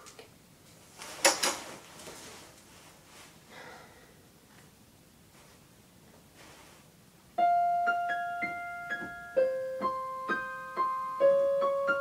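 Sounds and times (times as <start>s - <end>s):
faint rustling: 0.8s - 3.5s, 5.3s - 6.9s.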